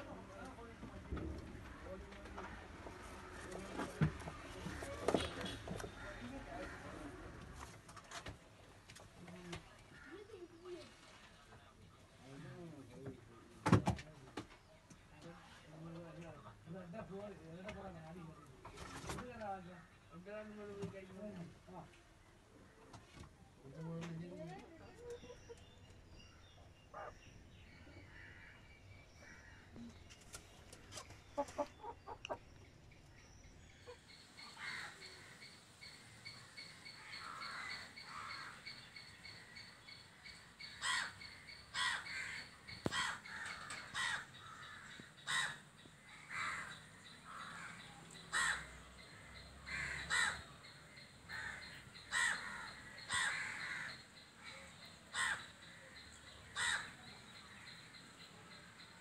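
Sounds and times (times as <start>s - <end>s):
crow cawing: 34.4s - 35.5s, 36.9s - 39.7s, 40.6s - 57.8s.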